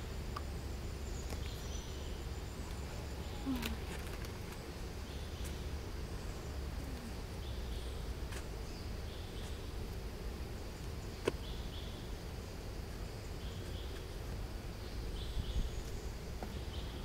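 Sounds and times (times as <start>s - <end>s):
high insect drone: 0.0s - 17.0s
faint chirps: 0.2s - 9.9s.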